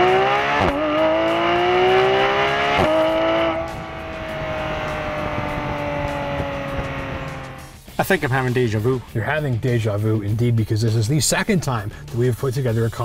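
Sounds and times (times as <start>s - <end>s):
car exhaust at full throttle: 0.0s - 7.9s.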